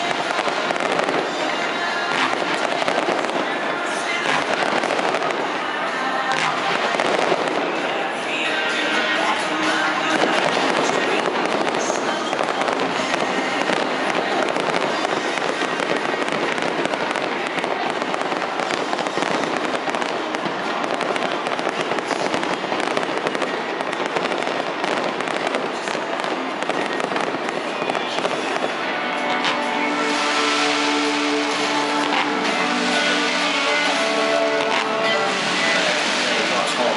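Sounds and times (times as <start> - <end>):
fireworks bursting and crackling: 0.0 - 36.9.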